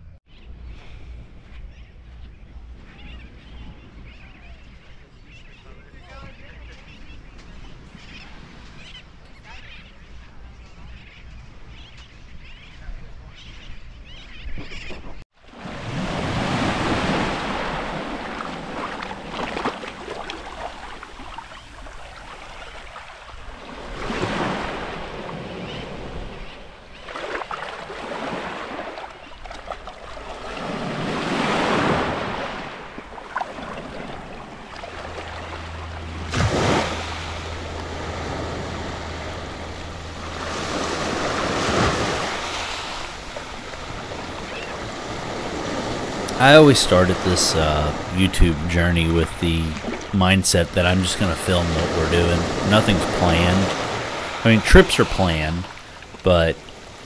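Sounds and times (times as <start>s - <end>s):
small waves breaking on beach: 15.4s - 57.0s.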